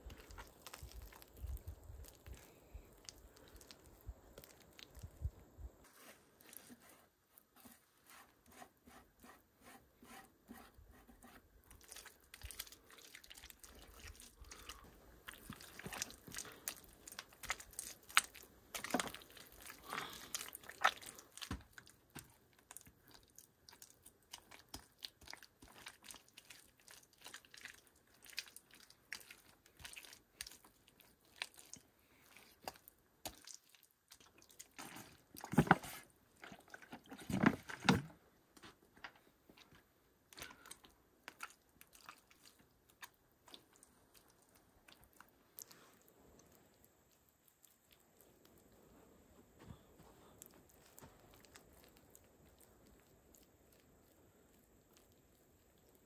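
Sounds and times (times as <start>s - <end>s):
hands squelching wet mud: 0.0s - 5.4s, 11.6s - 38.0s, 40.2s - 46.6s.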